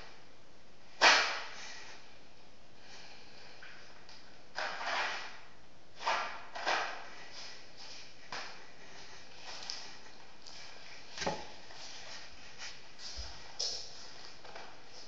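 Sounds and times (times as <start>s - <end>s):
cardboard scraping and sliding: 4.6s - 5.4s.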